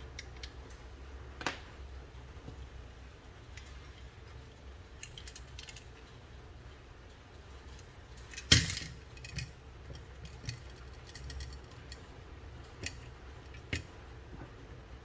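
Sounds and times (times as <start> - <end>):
small metal clicks and clinks: 3.5 - 6.2, 7.6 - 14.0.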